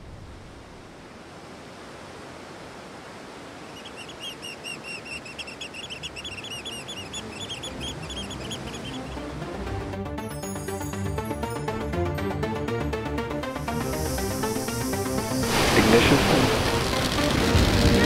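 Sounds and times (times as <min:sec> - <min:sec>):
wind: 0:00.0 - 0:18.0
bird chirping: 0:03.6 - 0:09.6
surf rushing: 0:13.6 - 0:18.0.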